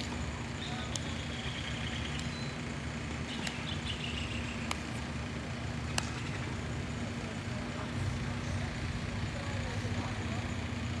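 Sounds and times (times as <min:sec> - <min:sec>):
constant low hum: 0:00.0 - 0:11.0
faint bird chirps: 0:00.6 - 0:02.6.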